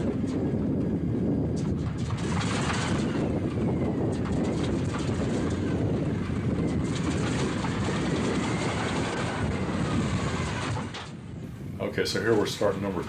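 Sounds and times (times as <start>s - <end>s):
radial aircraft engine rumble: 0.0s - 13.0s.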